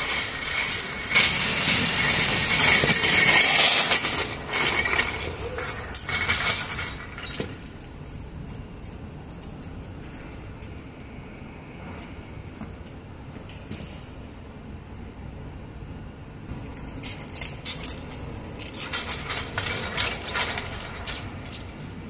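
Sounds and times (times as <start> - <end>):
metal dolly rattling on concrete: 0.0 - 7.8, 16.9 - 22.0.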